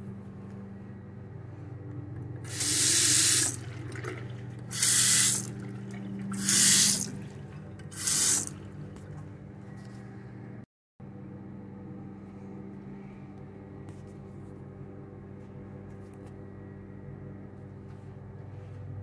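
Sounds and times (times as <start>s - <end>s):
low hum: 0.0s - 19.0s
faucet water splashing in basin: 2.5s - 8.7s.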